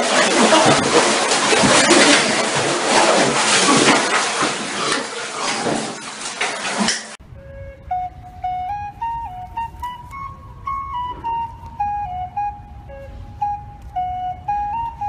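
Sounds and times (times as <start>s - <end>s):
shower water splashing: 0.0s - 7.2s.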